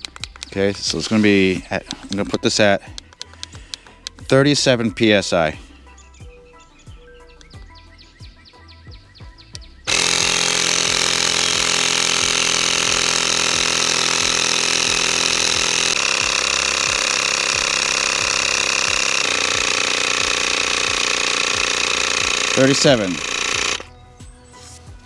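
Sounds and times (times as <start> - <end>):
electric tire inflator running: 9.9 - 23.9.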